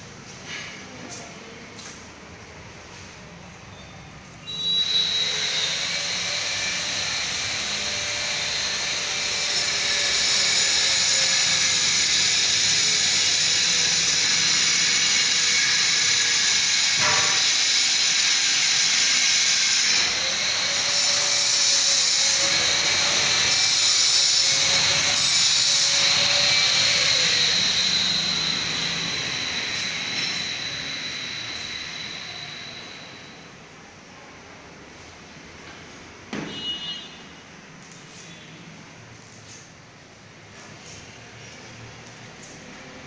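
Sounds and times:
machine whining: 0:04.4 - 0:33.6.

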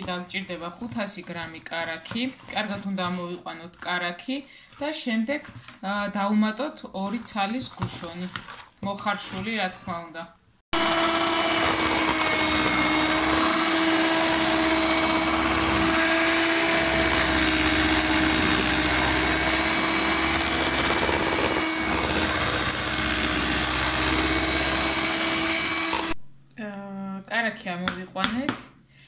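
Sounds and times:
electric hand mixer running: 0:10.8 - 0:26.2.

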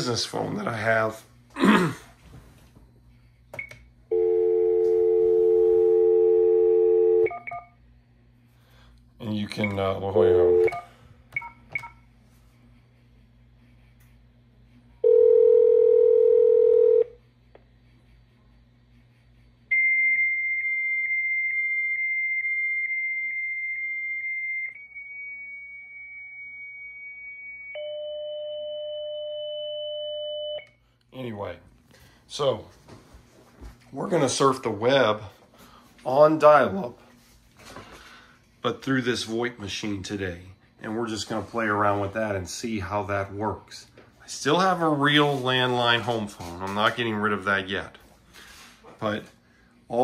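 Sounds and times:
telephone dial tone: 0:15.0 - 0:17.1.

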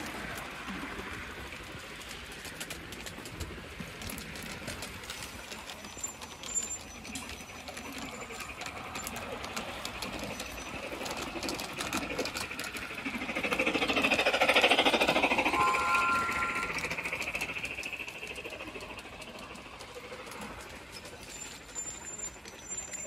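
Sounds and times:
model locomotive rattling: 0:00.0 - 0:23.0.

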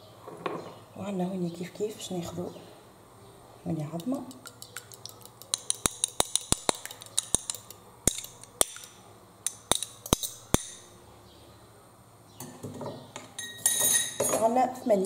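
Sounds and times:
fork clinking against glass bowl: 0:04.4 - 0:08.9.

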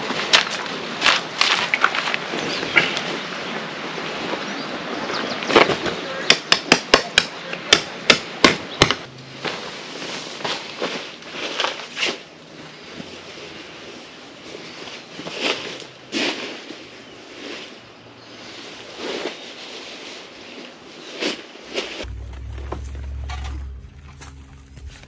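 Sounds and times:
rustling and handling noise: 0:09.3 - 0:17.8.

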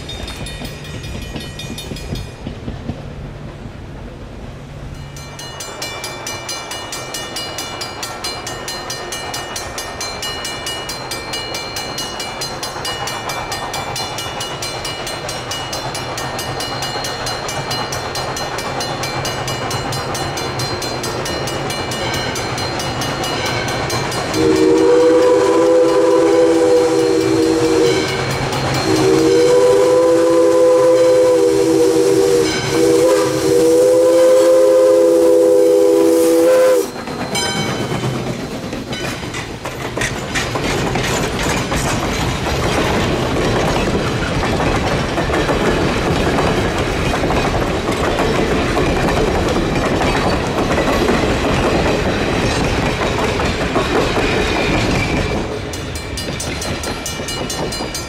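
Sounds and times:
crossing warning bell ringing: 0:00.0 - 0:02.7, 0:04.8 - 0:38.3, 0:54.6 - 0:58.0
chime steam whistle blasts: 0:24.3 - 0:37.8.

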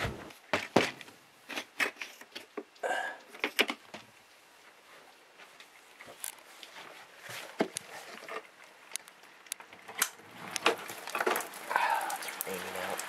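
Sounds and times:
rain hiss: 0:08.6 - 0:13.0.

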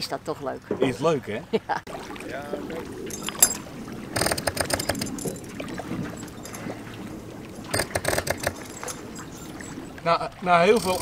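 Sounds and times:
water splashing and bubbling: 0:00.0 - 0:11.0
crackling splashes: 0:01.8 - 0:11.0.

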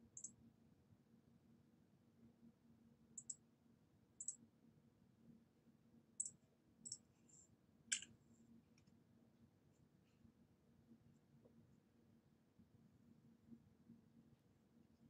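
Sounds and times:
computer mouse clicks: 0:03.2 - 0:03.4, 0:07.9 - 0:08.1.

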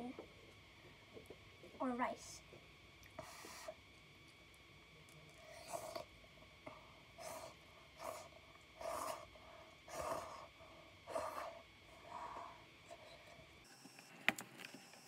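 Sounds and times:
breathy mouth sounds eating noodles: 0:05.3 - 0:13.5.

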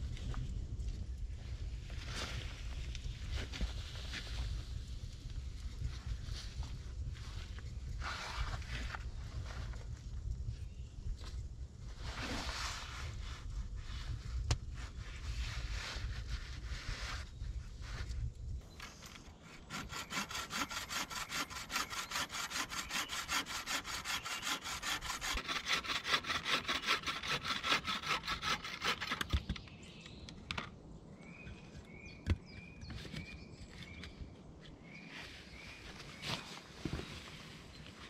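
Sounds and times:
hand saw cutting wood: 0:18.8 - 0:29.4.

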